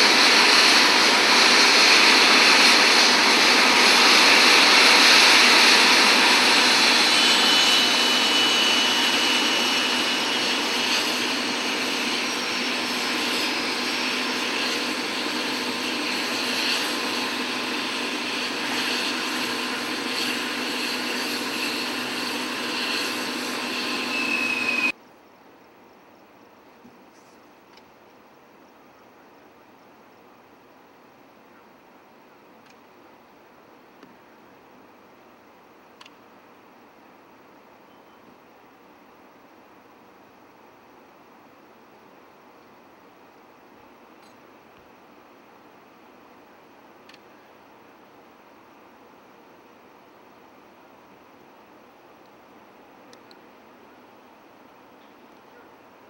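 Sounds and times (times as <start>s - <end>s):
helicopter turbine whine: 0.0s - 25.0s.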